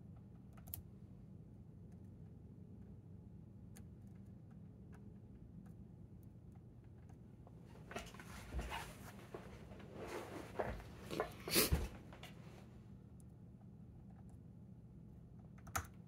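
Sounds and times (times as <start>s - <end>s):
rustles and scrapes of handling: 7.7s - 12.7s.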